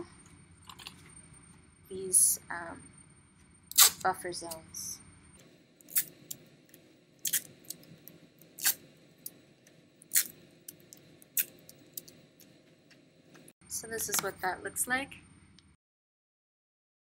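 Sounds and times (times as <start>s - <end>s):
masking tape ripping: 3.7s - 4.0s, 7.2s - 7.5s.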